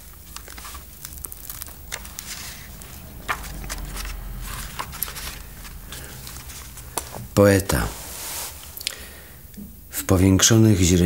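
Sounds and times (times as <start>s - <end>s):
book pages turning: 0.0s - 8.8s
low steady hum: 0.0s - 11.0s.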